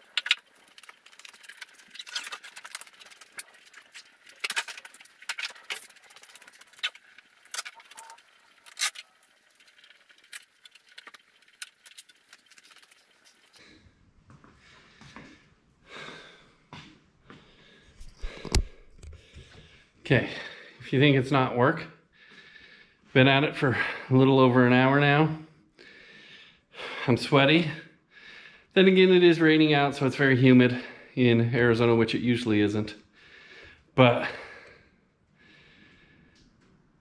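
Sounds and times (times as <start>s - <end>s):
packing foam rustling and rattling: 0.0s - 13.6s.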